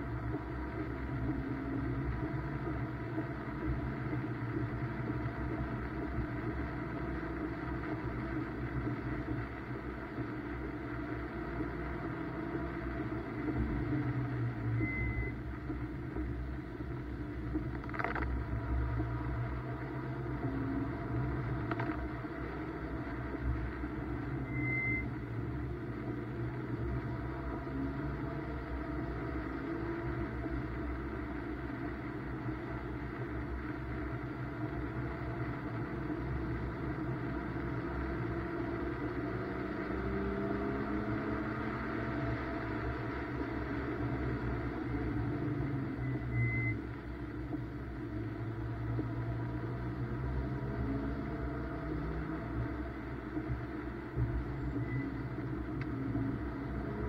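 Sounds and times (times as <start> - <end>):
car engine accelerating: 0.0 - 57.0
road and tyre drone: 0.0 - 57.0
short high beep: 14.7 - 15.4, 24.4 - 25.1, 46.0 - 46.8.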